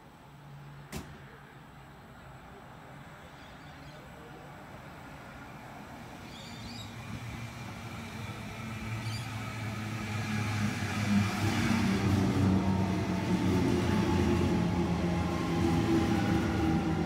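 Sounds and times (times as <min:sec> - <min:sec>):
faint bird chirps: 0:03.2 - 0:04.1, 0:06.3 - 0:07.0, 0:09.0 - 0:09.4
electric train approaching: 0:04.8 - 0:17.0.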